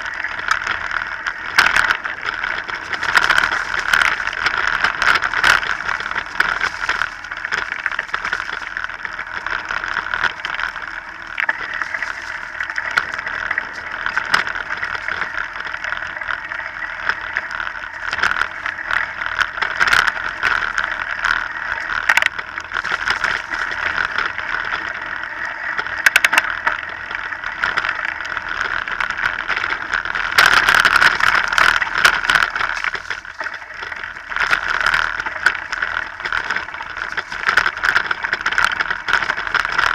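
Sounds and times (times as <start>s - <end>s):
bike rattling over bumps: 0.0s - 25.1s
bike tyres on dirt trail: 0.0s - 39.9s.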